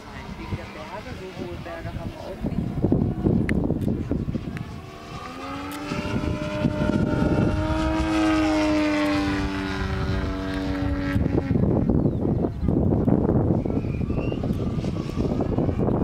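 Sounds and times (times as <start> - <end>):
model plane engine droning: 0.0 - 16.0.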